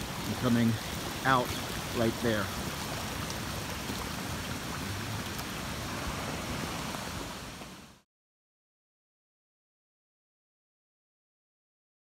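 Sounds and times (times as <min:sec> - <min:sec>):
rushing water and rain: 0:00.0 - 0:08.1.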